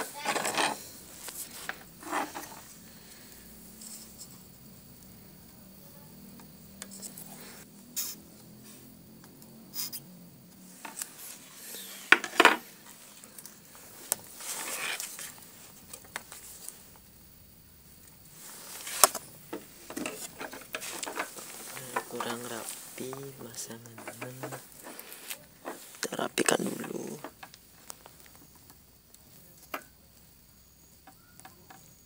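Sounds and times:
tools clicking on wooden workbench: 23.9 - 25.0.

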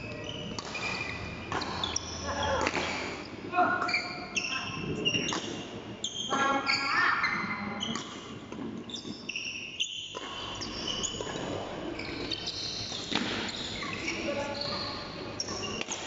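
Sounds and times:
shoes squeaking on court floor: 0.0 - 16.0
rackets striking shuttlecock: 0.4 - 3.2, 5.2 - 5.6, 7.9 - 14.0, 15.4 - 16.0.

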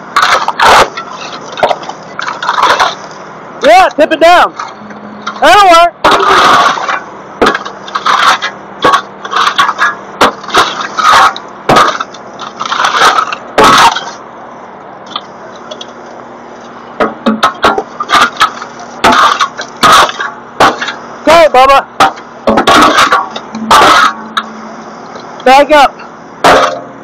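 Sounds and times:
debris cracking and scraping: 0.0 - 14.2, 17.3 - 21.4, 22.0 - 24.5
machine engine running: 0.0 - 27.0.

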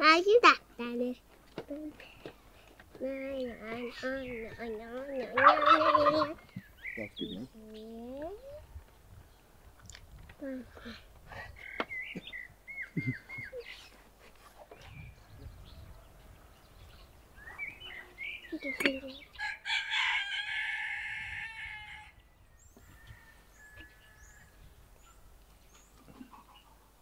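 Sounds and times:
small birds chirping: 0.1 - 27.0
rooster crowing: 19.4 - 22.2, 22.8 - 24.8.

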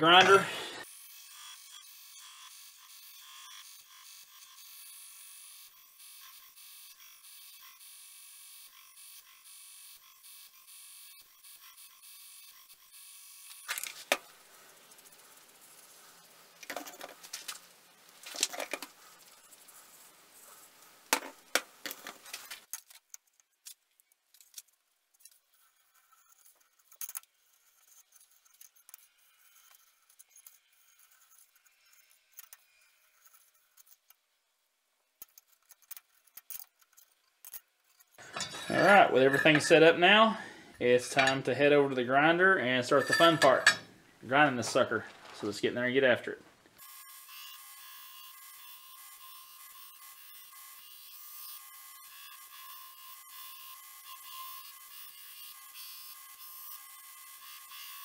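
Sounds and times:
hand tools clicking and clinking: 35.2 - 39.8, 41.1 - 41.5, 42.9 - 43.9
tools scraping on workbench: 38.1 - 40.0, 41.0 - 41.5, 42.9 - 43.9.

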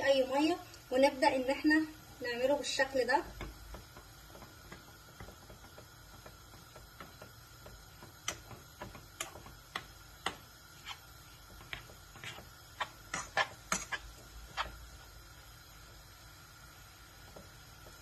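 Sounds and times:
metal spoon scraping metal pot: 12.2 - 14.8.

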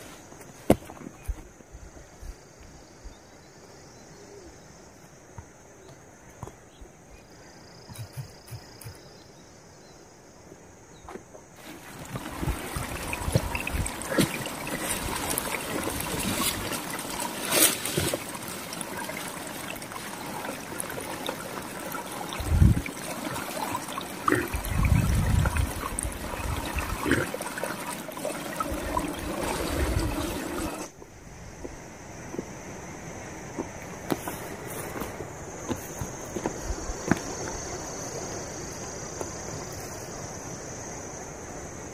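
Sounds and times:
stream water splashing: 11.5 - 31.0.

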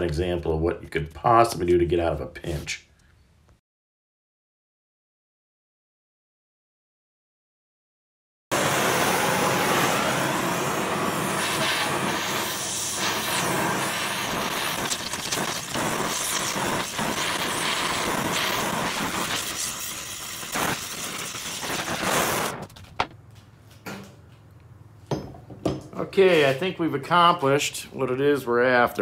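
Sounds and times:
torch flame hissing: 8.5 - 22.8.

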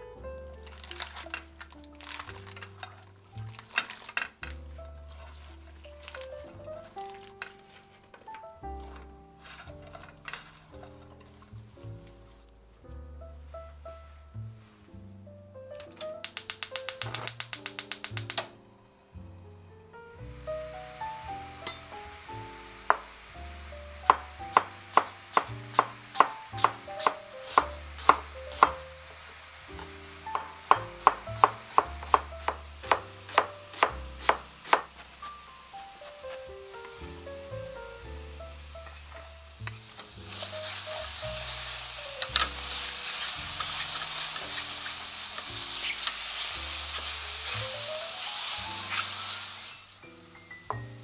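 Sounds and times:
mushrooms sizzling in frying pan: 0.0 - 13.0, 16.0 - 19.3, 20.0 - 51.0
soft background music: 0.0 - 51.0
spatula scraping pan: 8.8 - 11.3, 39.7 - 47.8
knife chopping onion on board: 24.1 - 28.8, 30.3 - 35.0.

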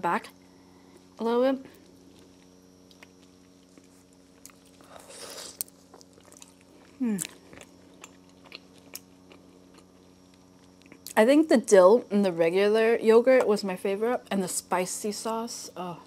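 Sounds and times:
biting and chewing food: 1.8 - 11.2
person humming mm: 7.0 - 7.4.

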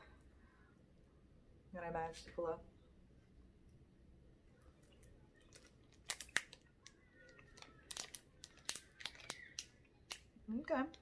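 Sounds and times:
plastic tray crackling: 4.8 - 10.3.

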